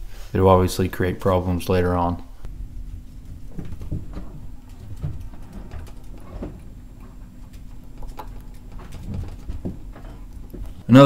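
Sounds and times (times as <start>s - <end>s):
steady low hum: 0.0s - 11.0s
faint ticks and knocks: 2.4s - 11.0s.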